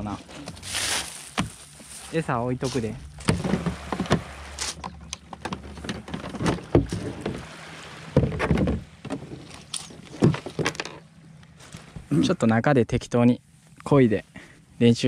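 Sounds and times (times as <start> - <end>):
fishing gear knocking against kayak: 3.2 - 7.5, 8.1 - 9.4.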